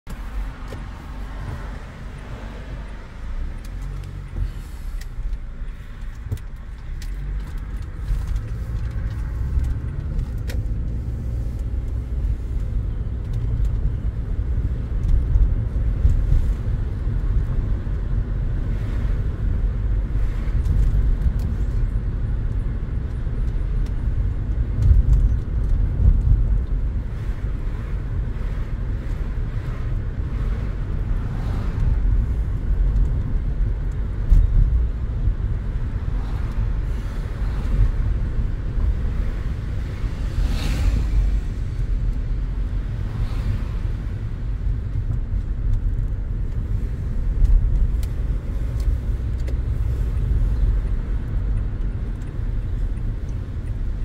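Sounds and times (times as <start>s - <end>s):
engine and tyre rumble in car: 0.0s - 54.0s
light clicks and rattles: 3.4s - 18.0s, 20.5s - 26.8s, 30.4s - 36.6s, 44.6s - 54.0s.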